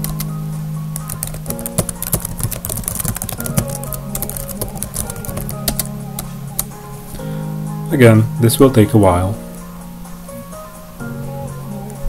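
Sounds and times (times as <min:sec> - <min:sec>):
keyboard keys clicking: 0:00.0 - 0:00.3, 0:01.0 - 0:06.7
background music with held notes: 0:00.0 - 0:12.0.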